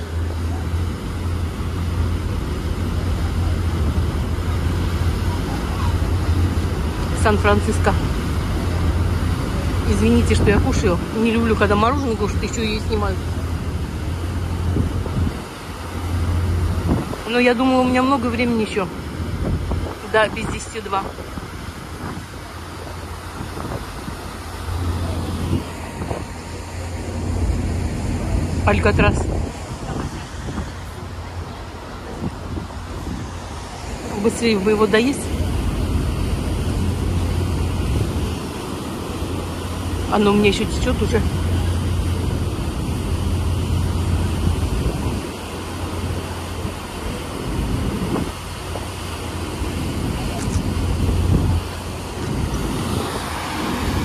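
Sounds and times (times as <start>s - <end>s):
churning water wake: 0.0s - 54.0s
ferry engines droning: 0.0s - 54.0s
wind noise: 13.4s - 17.3s, 19.0s - 40.0s, 41.3s - 54.0s.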